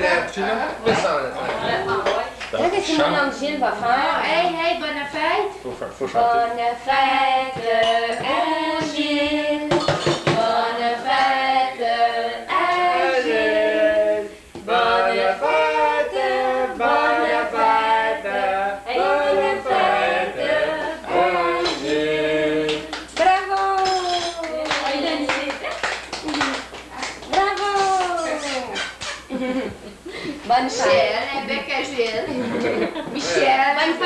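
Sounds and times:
group singing in unison: 6.1 - 23.3.

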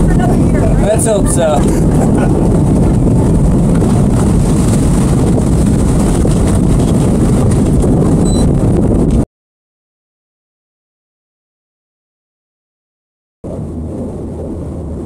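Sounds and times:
boat motor running: 0.0 - 9.2, 13.4 - 15.0
wind buffeting microphone: 0.0 - 9.2, 13.4 - 15.0.

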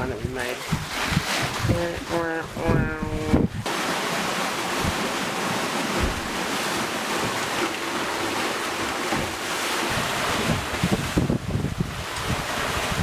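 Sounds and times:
wind on microphone: 0.0 - 3.7, 4.7 - 5.2, 9.1 - 13.0
water rushing along hull: 0.0 - 13.0.

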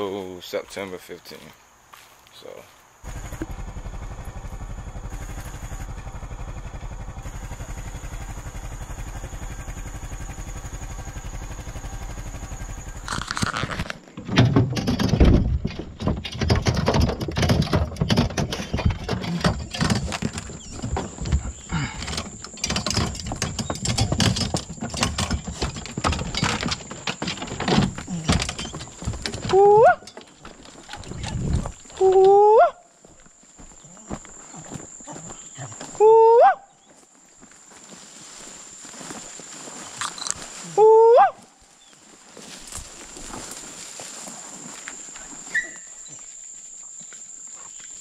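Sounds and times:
truck engine running: 3.0 - 13.3
rumbling rattling and scraping: 3.0 - 32.2.

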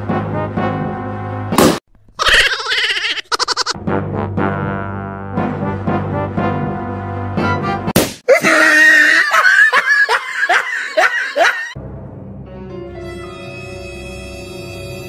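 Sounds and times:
background music: 0.0 - 1.8, 3.8 - 8.0, 11.8 - 15.0
brass background music: 0.0 - 1.8, 3.8 - 8.0, 11.8 - 15.0
balloon bursting: 1.5 - 1.8
swooping voice-like cries: 8.3 - 11.8.

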